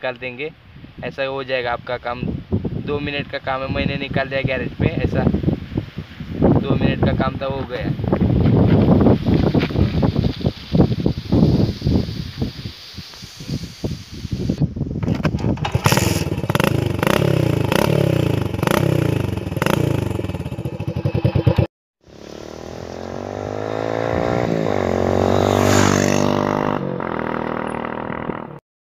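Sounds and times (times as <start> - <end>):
exhaust cracks: 15.0 - 26.2
motorcycle engine revving: 15.0 - 28.6
motorcycle passing by: 15.8 - 28.6.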